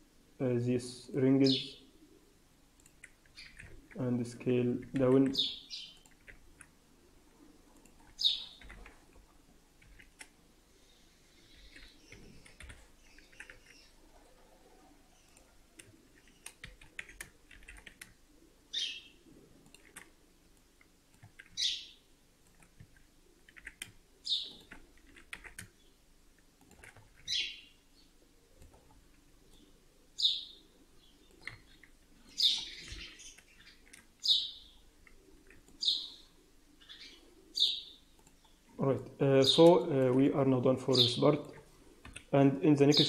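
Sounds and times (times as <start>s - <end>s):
keyboard and mouse clicking: 2.8s - 4.0s, 7.8s - 9.0s, 9.8s - 10.4s, 11.6s - 13.9s, 15.3s - 18.2s, 19.6s - 21.6s, 22.4s - 25.8s, 26.6s - 27.3s, 31.3s - 32.0s, 32.6s - 34.1s, 38.2s - 38.6s, 42.0s - 42.3s
bird chirping: 5.2s - 6.1s, 8.1s - 8.7s, 10.8s - 14.0s, 18.7s - 19.2s, 21.5s - 22.1s, 24.2s - 24.8s, 27.2s - 28.2s, 29.5s - 38.8s.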